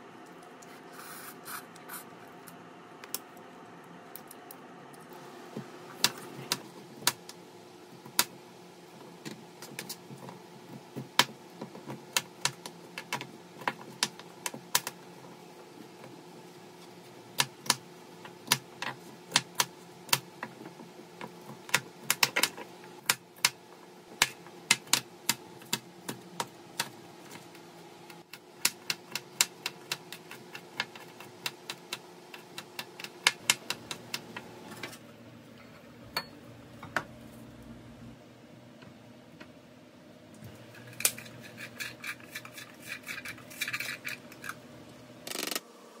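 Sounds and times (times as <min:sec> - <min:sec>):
faint steady hum: 0:00.0 - 0:46.0.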